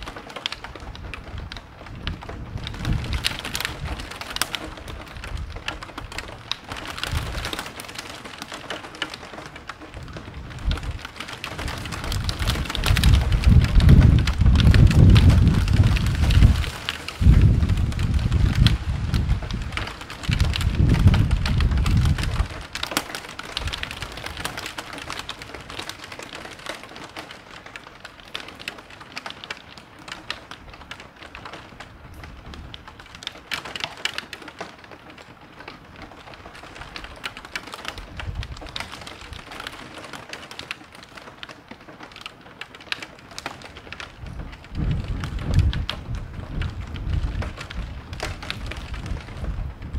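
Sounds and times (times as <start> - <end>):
heavy rain falling: 0.0 - 49.9
rumble of thunder: 1.0 - 4.1, 10.0 - 22.8, 44.2 - 49.9.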